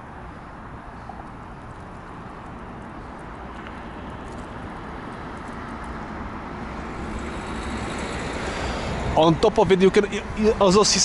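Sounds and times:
vehicle approaching on road: 0.0s - 11.0s.

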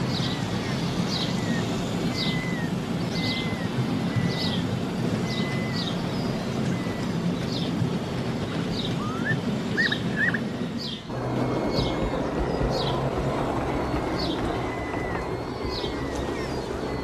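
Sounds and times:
rising bird calls: 0.0s - 7.8s, 8.6s - 17.0s.

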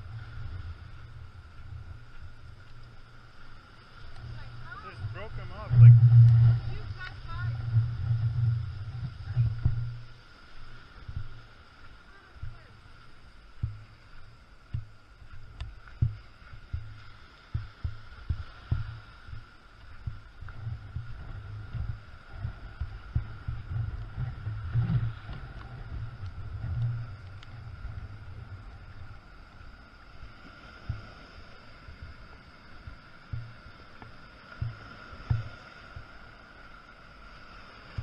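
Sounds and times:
surf breaking on rocky shore: 4.0s - 13.8s
wind buffeting microphone: 4.0s - 30.2s.

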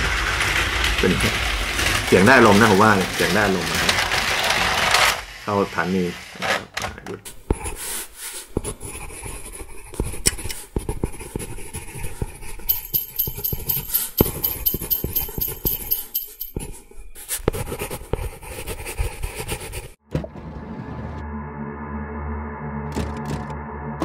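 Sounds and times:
toy train clattering on track: 0.0s - 5.2s, 12.7s - 16.6s
higher rattle: 12.7s - 16.6s.

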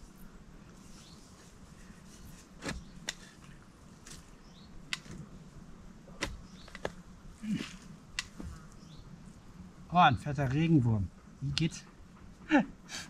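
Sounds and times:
spade digging into soil: 2.2s - 4.3s, 6.2s - 8.6s.

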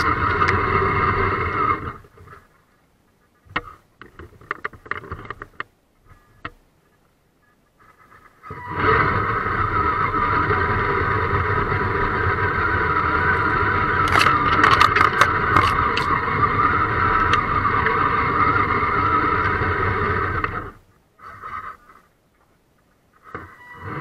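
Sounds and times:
toy truck motor and gears: 0.0s - 2.2s, 8.5s - 22.0s, 23.2s - 24.0s
branches clicking and scraping: 13.3s - 16.2s.

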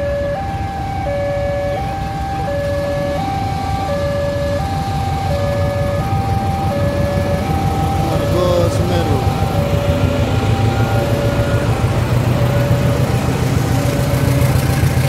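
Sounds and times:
two-tone electronic warning signal: 0.0s - 14.8s
locomotive engine rumble: 0.0s - 15.0s.

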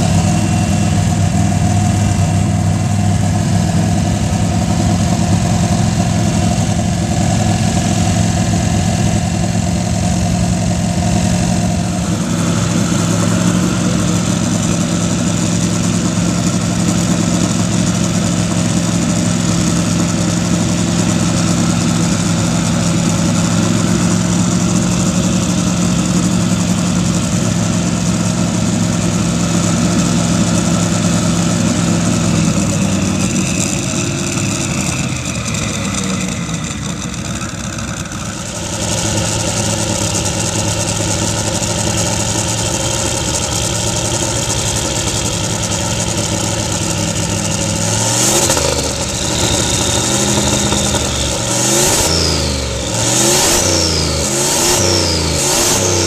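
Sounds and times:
turbocharged engine idling: 0.0s - 56.0s.

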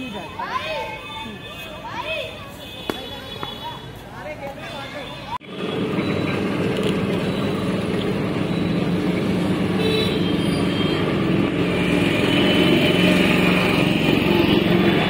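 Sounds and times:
roadside traffic noise: 0.0s - 15.0s
engine drone: 5.4s - 15.0s.

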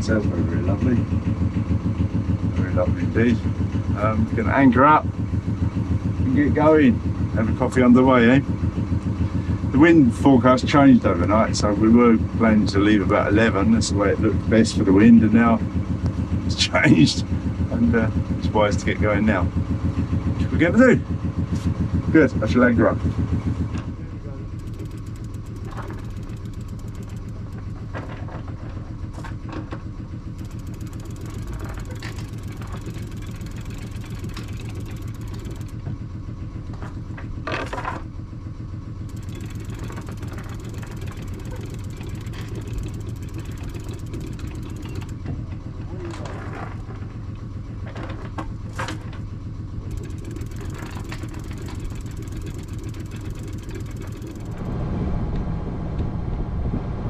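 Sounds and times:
boat engine idling: 0.0s - 54.9s
anchor clanking: 24.4s - 29.7s, 30.4s - 36.0s, 39.1s - 45.4s, 49.8s - 54.7s.

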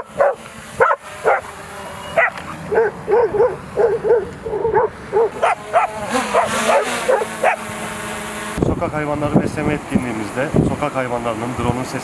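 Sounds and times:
dogs barking rapidly: 0.0s - 7.9s.

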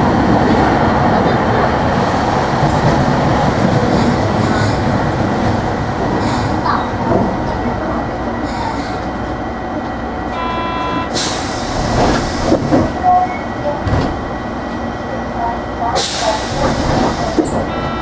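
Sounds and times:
faint tram motors: 0.0s - 18.0s
tram wheels rumbling on rail: 0.0s - 18.0s
short electronic tone: 10.3s - 11.1s.

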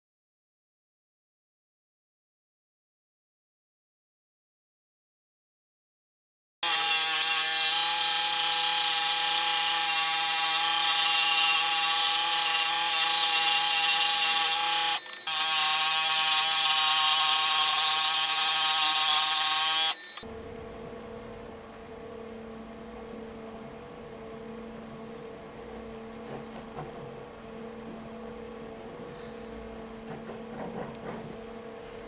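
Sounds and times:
scroll saw cutting wood: 6.6s - 20.3s
faint hum: 20.2s - 32.0s.

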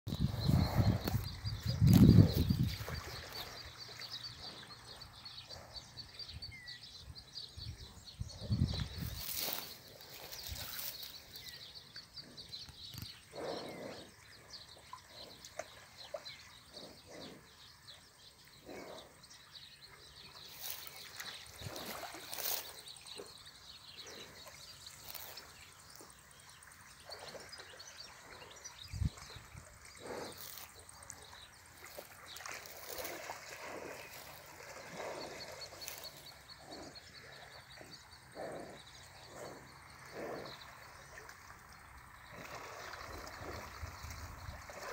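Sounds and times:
birds chirping: 0.1s - 44.9s
footsteps in dry grass: 9.0s - 11.5s.

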